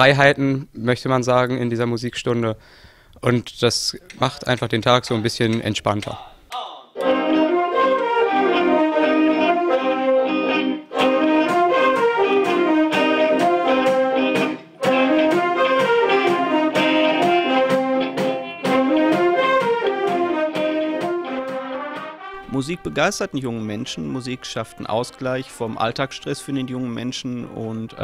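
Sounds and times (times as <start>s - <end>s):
big band playing: 7.0s - 23.0s
drum hits: 11.6s - 22.2s.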